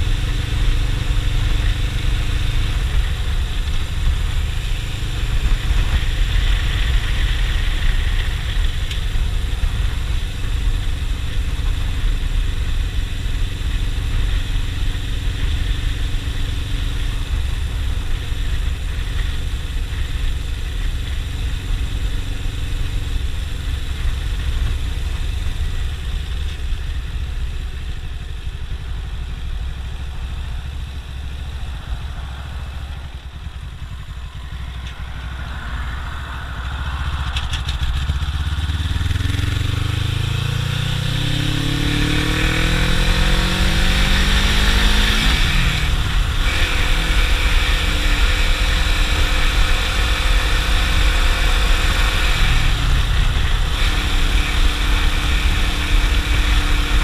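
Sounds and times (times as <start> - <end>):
wind rumble on microphone: 0.0 - 22.6
motorcycle engine running: 0.0 - 57.0.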